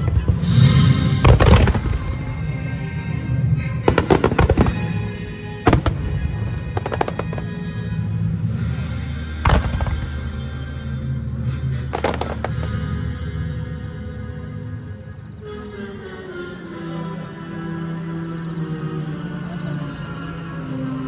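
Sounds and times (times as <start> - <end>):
fireworks bursting with crackle: 0.0 - 2.4, 3.8 - 7.8, 9.5 - 10.5, 11.8 - 12.9
steady music: 0.0 - 21.0.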